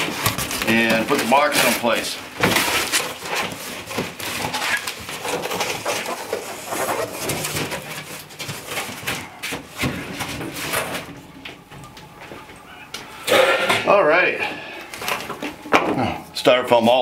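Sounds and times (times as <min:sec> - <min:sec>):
styrofoam crushing: 0:00.0 - 0:11.1.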